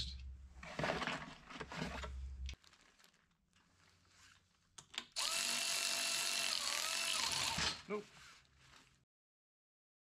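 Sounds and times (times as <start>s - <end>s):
cordless power tool running: 5.2s - 7.8s.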